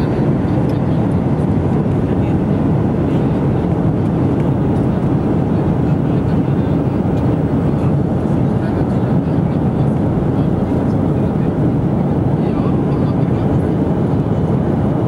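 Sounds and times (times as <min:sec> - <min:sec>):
jet cabin engine rush: 0:00.0 - 0:15.0.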